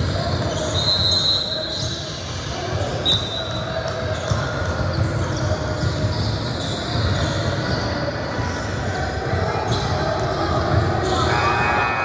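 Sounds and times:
background noise of play: 0.0 - 12.0
basketball bouncing: 2.1 - 7.9.

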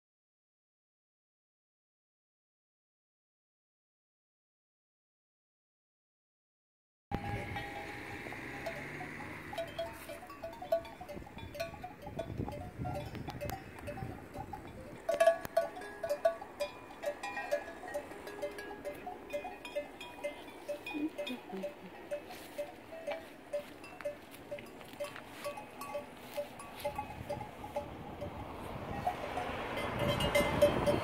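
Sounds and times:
cowbells clanging: 7.1 - 31.0.

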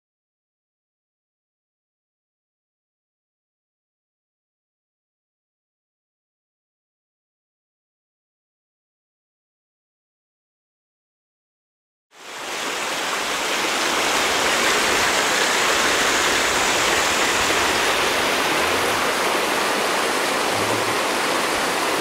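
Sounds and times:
water rushing over rocks: 12.2 - 22.0.

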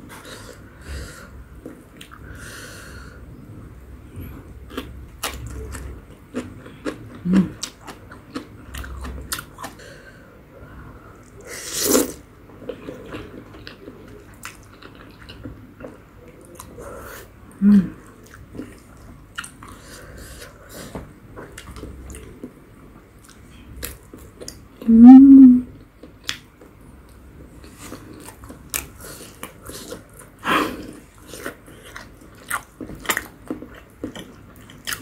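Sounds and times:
person chewing noodles: 4.3 - 10.0, 11.2 - 17.3, 18.0 - 22.5, 27.6 - 35.0
low-pitched mouth sound: 24.9 - 25.7.

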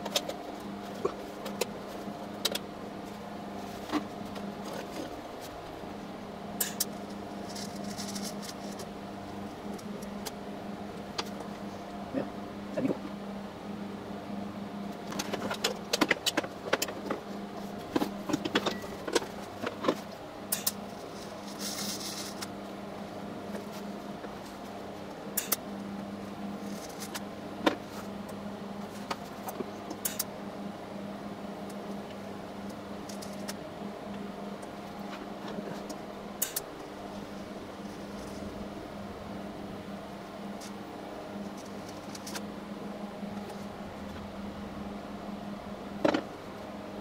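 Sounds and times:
welding setup hum: 0.0 - 47.0.

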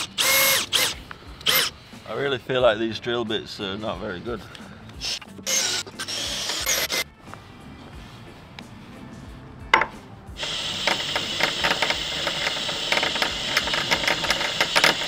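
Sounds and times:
drill bit cutting metal: 0.0 - 1.7, 5.0 - 7.0, 10.4 - 15.0.

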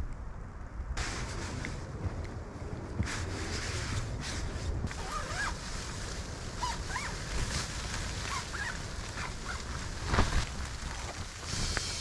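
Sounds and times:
storm wind on tent: 0.0 - 12.0
thump with rustling: 10.0 - 10.5.

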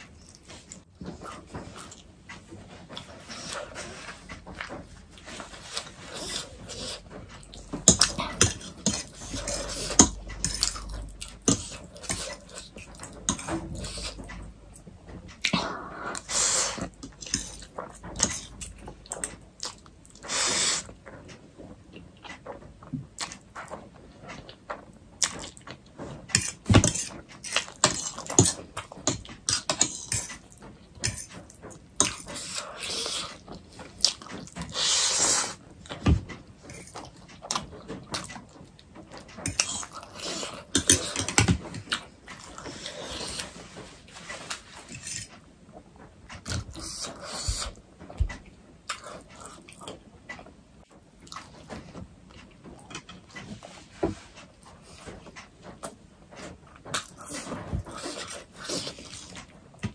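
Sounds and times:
wet chewing: 0.1 - 21.1
fork scraping on plate: 5.4 - 14.3, 39.4 - 45.3.

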